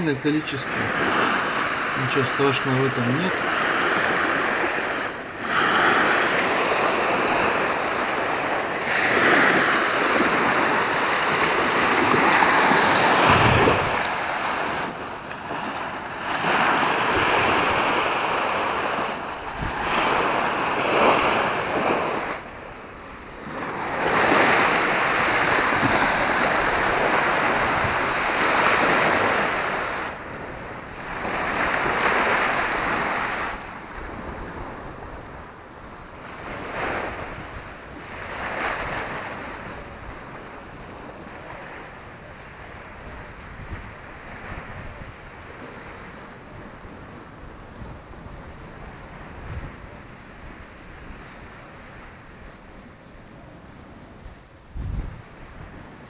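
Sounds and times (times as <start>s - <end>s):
waves breaking on beach: 0.0s - 56.0s
wind buffeting microphone: 3.5s - 22.4s, 23.0s - 41.6s, 42.6s - 45.5s, 54.6s - 56.0s.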